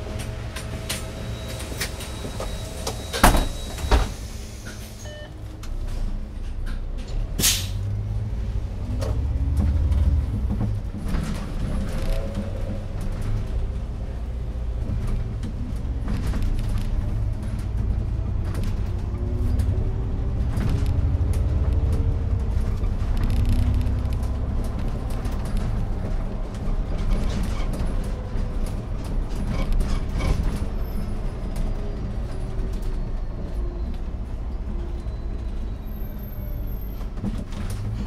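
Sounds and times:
bus engine drone: 0.0s - 38.0s
interior rattles and clicks: 8.9s - 34.8s, 37.0s - 38.0s
rising engine whine: 15.0s - 26.6s.

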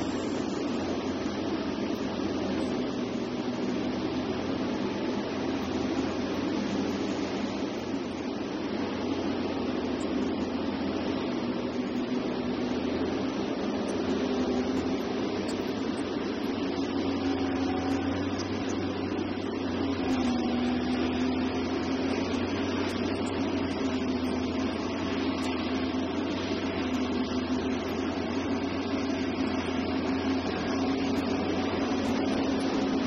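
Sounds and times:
excavator diesel drone: 0.0s - 33.0s
hydraulic whine: 0.0s - 33.0s.

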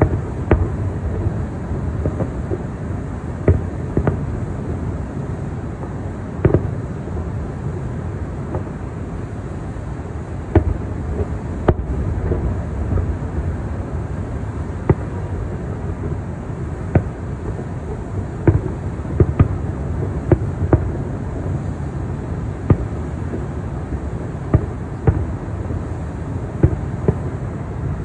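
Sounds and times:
distant firework booms: 0.0s - 2.6s, 10.5s - 13.6s, 16.9s - 17.2s
steady low rumble: 0.0s - 28.0s.

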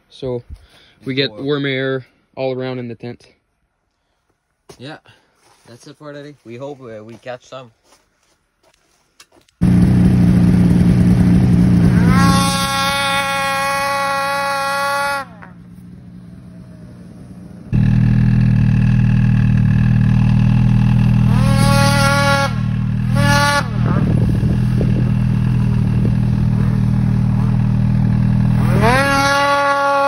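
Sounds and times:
snowmobile engine revving: 9.6s - 30.0s.

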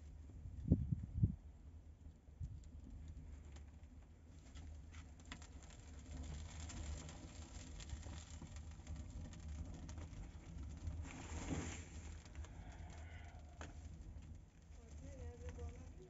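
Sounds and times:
wood fire burning in oven: 0.0s - 16.0s
fire crackles: 1.9s - 16.0s.

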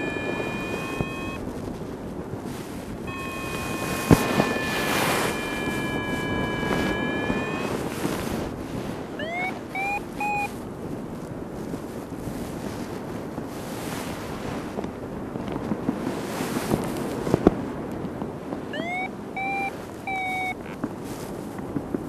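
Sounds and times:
short rising beeps: 0.0s - 1.4s, 3.1s - 7.9s, 9.2s - 10.5s, 18.8s - 20.6s
steady multi-tone whine: 0.0s - 1.6s, 3.0s - 8.6s, 9.2s - 10.6s
wind rushing on microphone: 0.0s - 22.0s.

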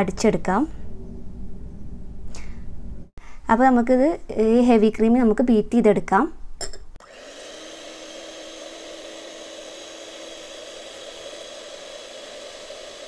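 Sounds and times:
electric hand mixer whipping cream: 7.0s - 13.0s.

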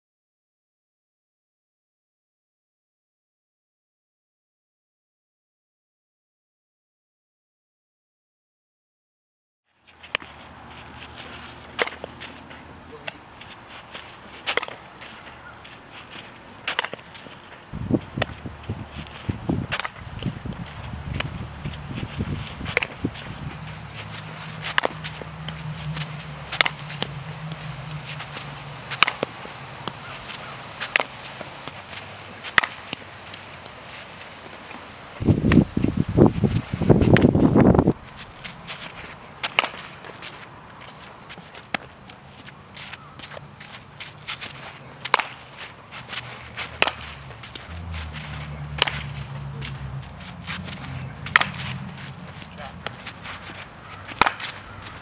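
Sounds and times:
bat striking softballs: 10.0s - 35.7s, 39.4s - 40.4s, 41.4s - 55.0s
low hum: 20.4s - 30.0s.

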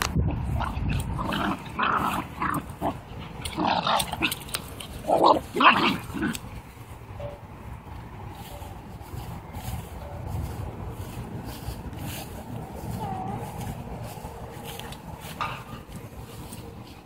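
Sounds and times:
dogs growling and barking: 0.3s - 6.4s.

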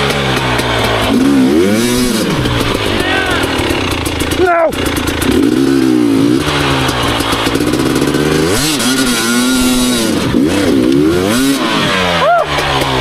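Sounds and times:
dirt bike engine with throttle blips: 0.0s - 13.0s.

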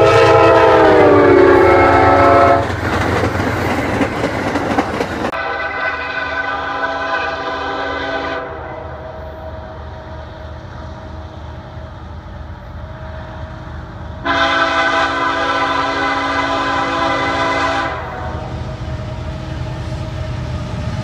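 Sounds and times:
locomotive air horn blast: 0.0s - 2.7s, 5.3s - 10.1s, 14.2s - 18.6s
low train rumble: 0.0s - 21.0s.

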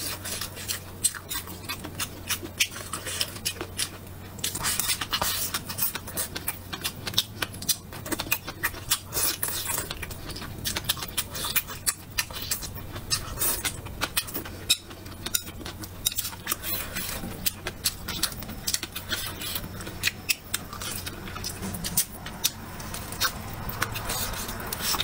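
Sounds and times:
person chewing and smacking food: 0.0s - 25.0s.

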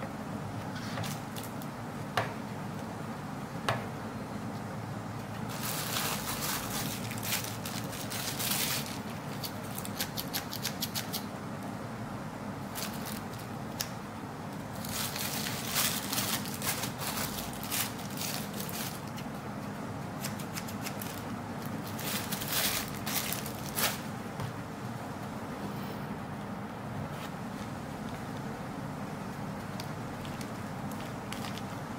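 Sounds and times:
plastic wrapping crinkling: 5.5s - 10.1s, 12.7s - 13.9s, 14.7s - 19.4s, 20.2s - 24.1s, 29.6s - 31.9s.

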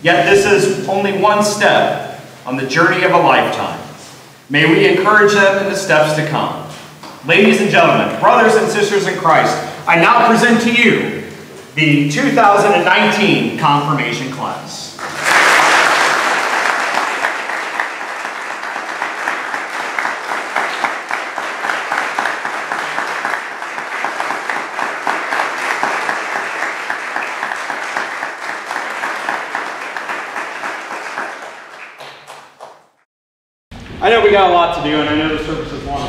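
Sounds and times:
crowd applauding: 15.0s - 33.0s.

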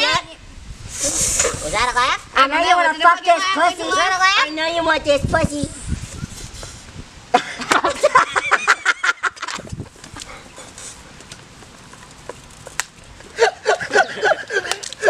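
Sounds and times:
people laughing: 7.3s - 9.7s, 13.3s - 15.0s.

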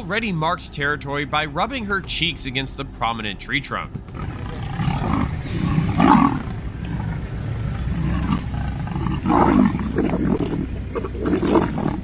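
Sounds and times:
leopards growling: 4.1s - 12.0s.

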